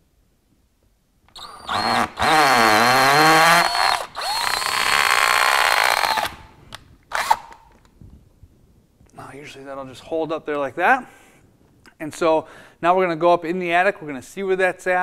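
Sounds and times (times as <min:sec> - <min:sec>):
cordless drill motor whirring: 0:01.3 - 0:07.6.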